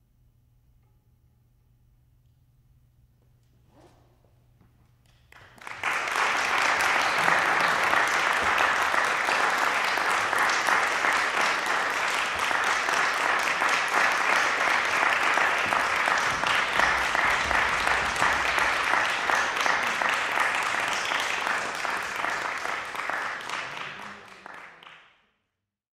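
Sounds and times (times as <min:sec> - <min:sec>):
audience applauding: 0:05.3 - 0:25.1.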